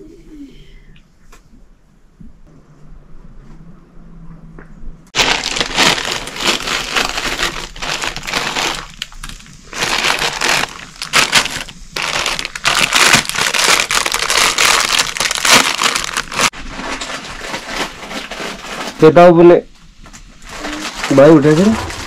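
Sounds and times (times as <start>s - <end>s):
plastic packets crinkling and tearing: 5.2s - 19.5s, 20.4s - 22.0s.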